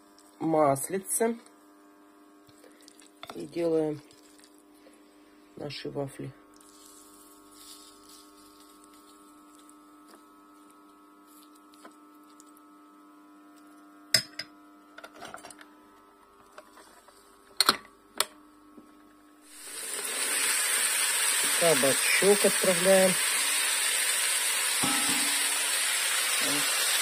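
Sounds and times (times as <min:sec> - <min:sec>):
steady electrical hum: 0:00.0 - 0:27.0
batter frying hiss: 0:06.6 - 0:10.8, 0:19.4 - 0:27.0.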